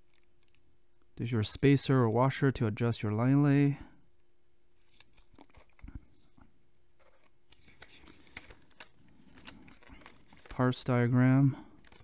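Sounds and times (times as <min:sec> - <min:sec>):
paper rustling: 0:04.8 - 0:06.4, 0:07.0 - 0:11.0, 0:11.7 - 0:12.0.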